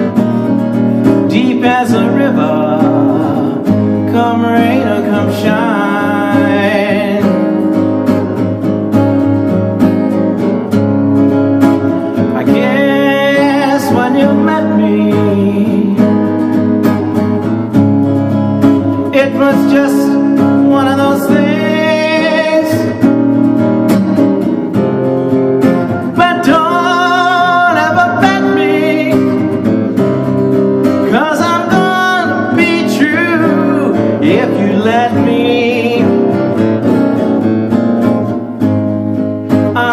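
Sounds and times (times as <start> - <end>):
man singing: 0.0 - 8.0, 11.8 - 17.5, 18.8 - 23.3, 25.6 - 30.1, 30.8 - 37.2, 39.5 - 39.9
strummed acoustic guitar: 0.0 - 39.9.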